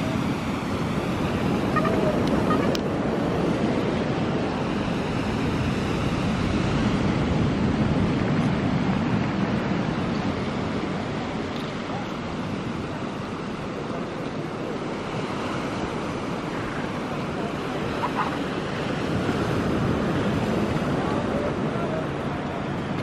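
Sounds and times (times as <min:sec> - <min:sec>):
surf on pebble beach: 0:00.0 - 0:23.0.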